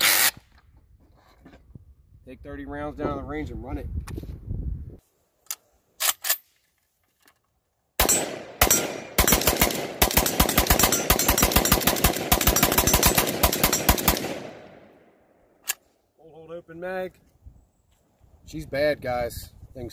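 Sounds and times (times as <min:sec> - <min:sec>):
rifle shots: 0:08.0 - 0:15.0
rifle clicks: 0:15.6 - 0:15.9.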